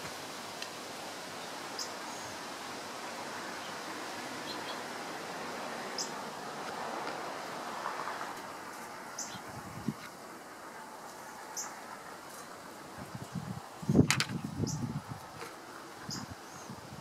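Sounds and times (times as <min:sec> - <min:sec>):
outdoor background hiss: 0:00.0 - 0:17.0
small birds chirping: 0:03.5 - 0:04.9, 0:05.9 - 0:06.2, 0:09.1 - 0:10.0, 0:13.0 - 0:15.0, 0:15.8 - 0:16.8.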